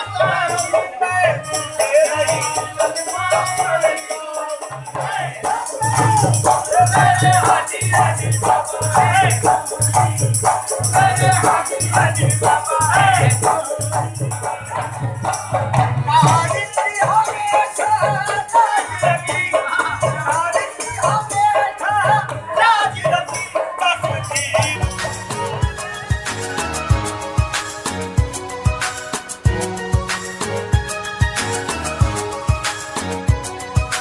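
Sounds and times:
man singing: 0:00.0 - 0:25.6
steady drum beat: 0:00.0 - 0:34.0.

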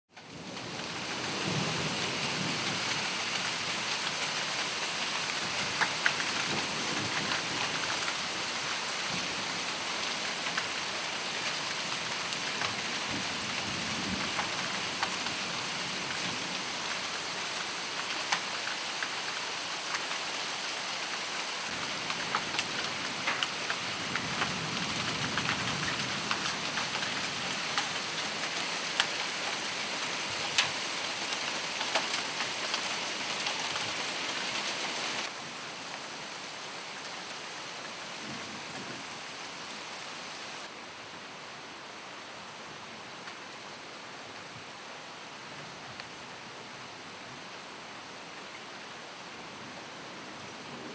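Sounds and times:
hailstones striking leaves and ground: 0:00.2 - 0:40.7
heavy rain pouring: 0:00.2 - 0:40.8, 0:45.4 - 0:50.9.

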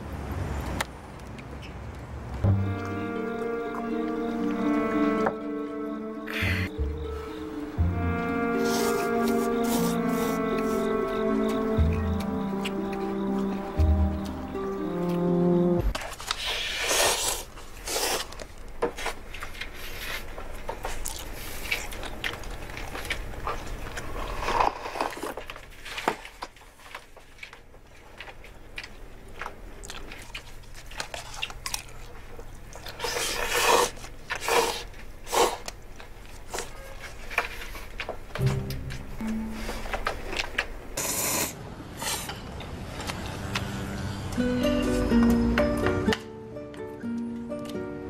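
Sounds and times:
chewing: 0:16.0 - 0:38.3
noodle slurping: 0:32.7 - 0:35.7.

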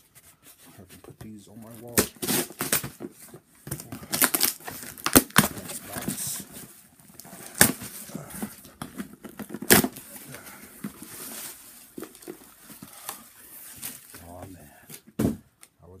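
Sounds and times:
cardboard box tearing open: 0:01.8 - 0:03.1, 0:03.8 - 0:06.4, 0:07.2 - 0:12.5.

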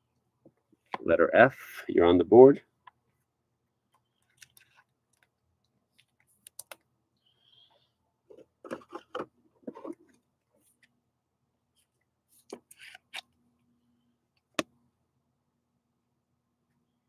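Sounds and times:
cards rustling and sliding: 0:04.2 - 0:04.9, 0:12.4 - 0:13.3.

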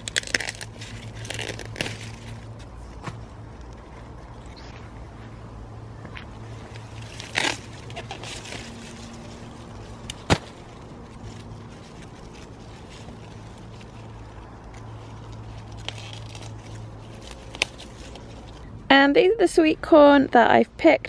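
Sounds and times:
leaves and husks rustling: 0:00.0 - 0:18.8.

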